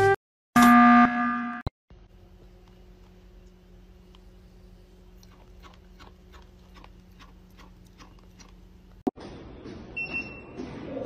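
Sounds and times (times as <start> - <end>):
animal chewing dry food: 5.2 - 8.6.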